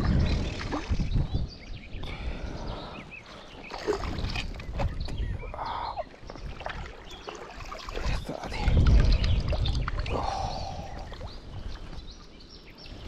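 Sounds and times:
wind rumble on microphone: 0.0s - 13.0s
fish thrashing and splashing water: 3.6s - 5.0s, 6.1s - 11.3s.

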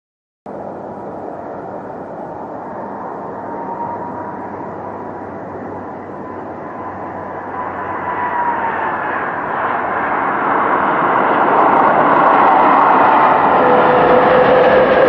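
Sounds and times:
jet engine whine: 0.5s - 15.0s.

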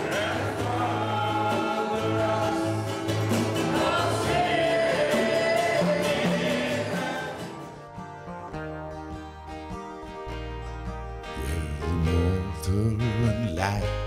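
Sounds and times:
men singing gospel song: 0.0s - 7.6s
ukuleles and acoustic guitar: 0.0s - 14.0s.

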